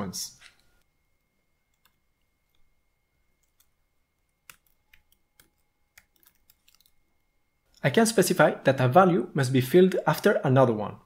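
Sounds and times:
computer keyboard typing: 1.7 - 2.7, 3.3 - 7.0.

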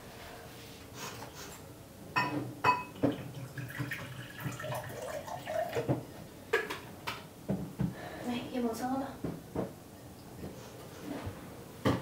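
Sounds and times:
water pouring into a glass: 2.9 - 6.0.

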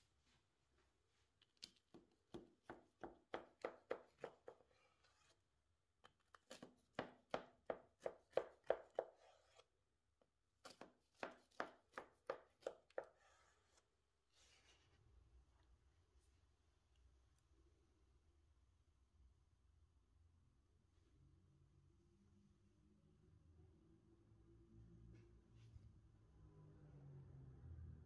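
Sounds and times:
knife sawing through cake: 4.4 - 5.4, 8.9 - 9.7, 12.9 - 13.9.

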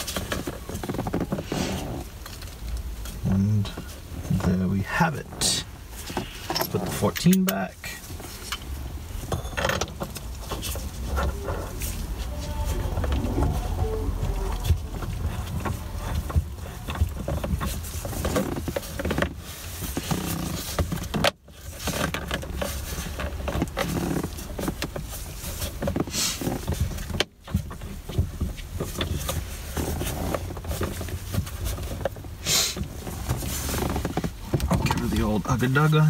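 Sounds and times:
steady low rumble: 10.1 - 18.2.

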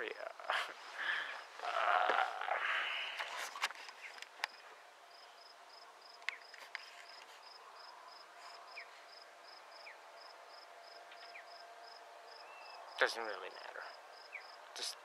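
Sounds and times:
insect chirping: 4.0 - 14.6.

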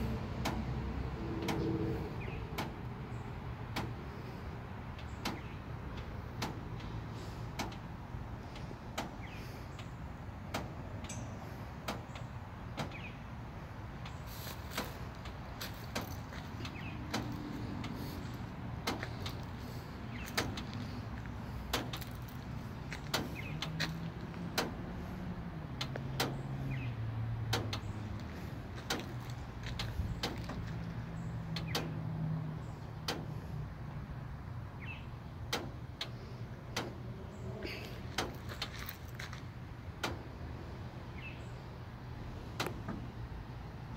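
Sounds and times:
vehicle engine running: 0.0 - 43.9
sharp clicks: 31.5 - 32.0.

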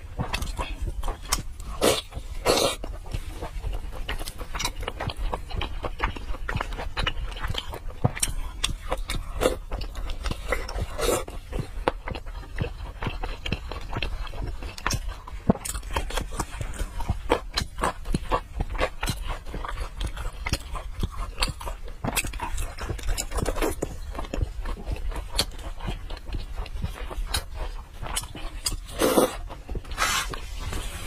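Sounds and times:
wet chewing and lip-smacking: 0.0 - 31.0
wet slurps: 28.9 - 31.0.

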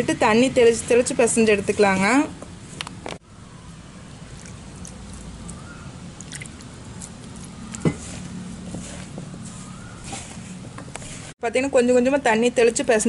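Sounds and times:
food squishing and rustling in bowl: 4.2 - 11.4.

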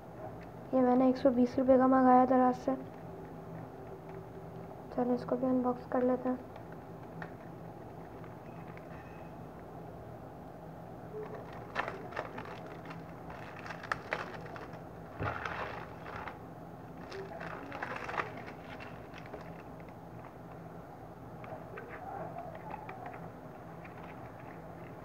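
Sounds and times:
plastic wrapper crinkling: 11.1 - 20.5.

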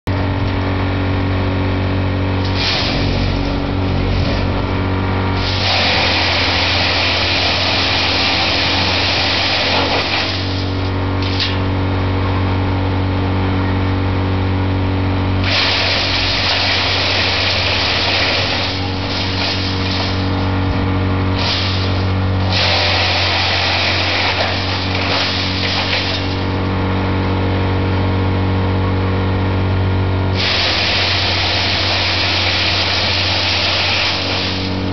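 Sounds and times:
wood rushing through chipper: 0.1 - 11.7, 15.4 - 27.0, 30.3 - 34.9
wood chipper humming: 0.1 - 34.9.

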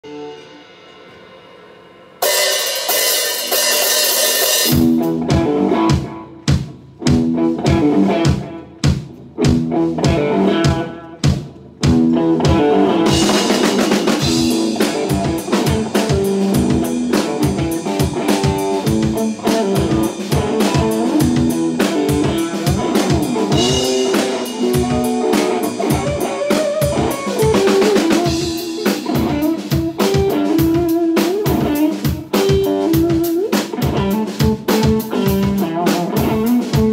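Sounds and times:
cymbal crash: 0.0 - 4.9
drum kit: 0.0 - 36.9
electric guitar playing blues: 2.3 - 36.9.

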